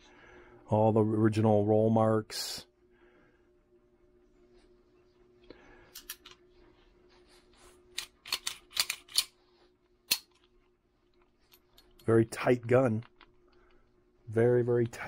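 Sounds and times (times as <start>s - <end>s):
pistol action metallic clicks: 8.0s - 9.3s, 10.1s - 10.4s.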